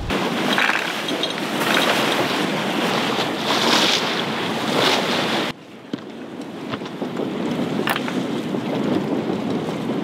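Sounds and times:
wind buffeting microphone: 0:00.0 - 0:00.6, 0:01.4 - 0:10.0.

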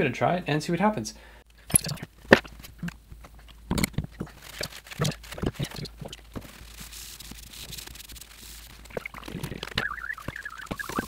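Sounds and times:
paper towel rubbing metal: 0:04.3 - 0:11.0.

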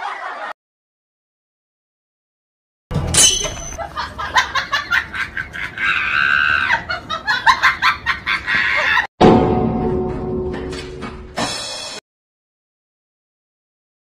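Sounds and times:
hearty laughter: 0:00.0 - 0:00.6, 0:03.8 - 0:09.1.

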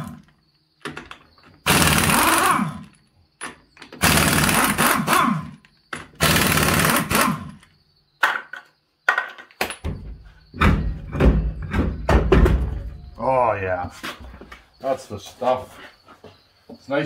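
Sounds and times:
low thuds and scuffing: 0:09.8 - 0:16.9.

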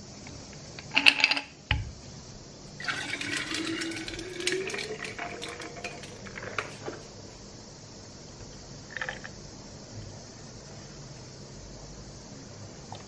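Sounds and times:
drink pouring over ice: 0:02.8 - 0:06.8.

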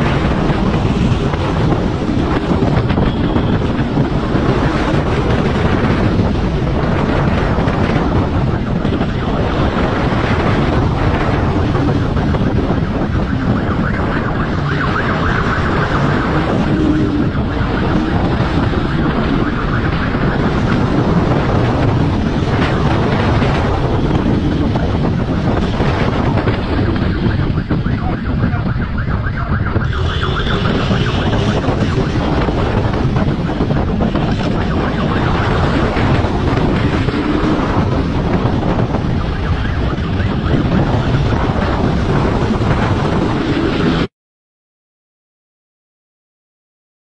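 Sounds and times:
wind rushing over microphone: 0:00.0 - 0:44.1.

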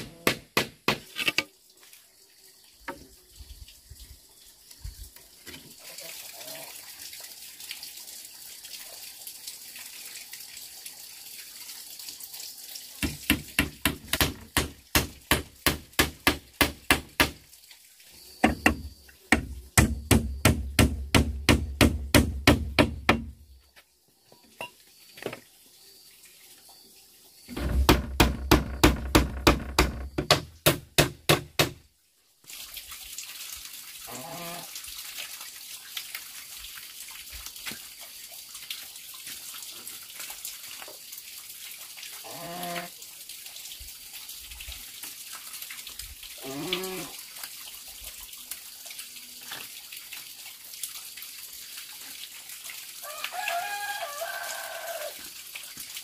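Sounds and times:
hand tool striking bamboo: 0:00.0 - 0:01.5, 0:13.0 - 0:17.4, 0:18.4 - 0:23.3, 0:27.6 - 0:31.8
running water hiss: 0:00.0 - 0:56.0.

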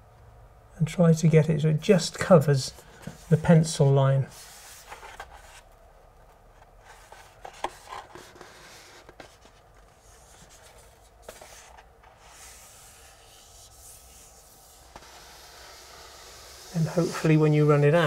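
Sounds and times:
paper rustling against wall: 0:04.3 - 0:15.3.

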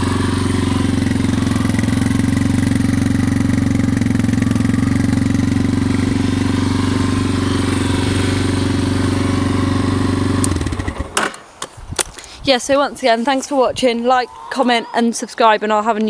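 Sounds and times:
quad engine idling: 0:00.0 - 0:11.2.

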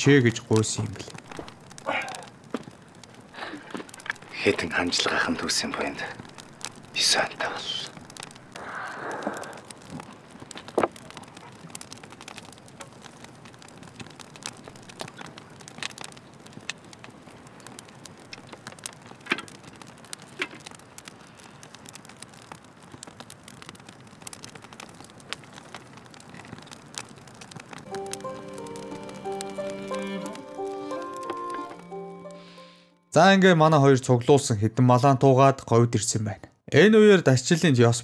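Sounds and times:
music with held notes: 0:27.9 - 0:33.1.

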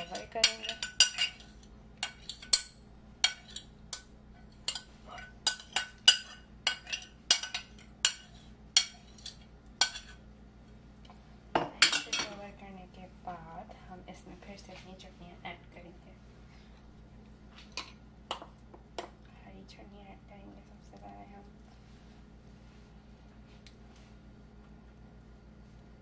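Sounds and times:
metal spoon clinking against bowls: 0:00.0 - 0:10.2.

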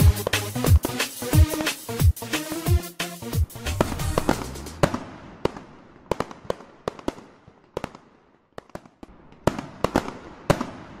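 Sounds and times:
fireworks bangs: 0:03.5 - 0:11.0.

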